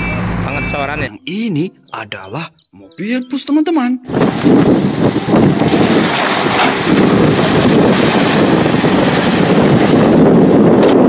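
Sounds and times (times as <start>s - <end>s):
splashing water: 4.1s - 10.5s
wind buffeting microphone: 4.1s - 11.0s.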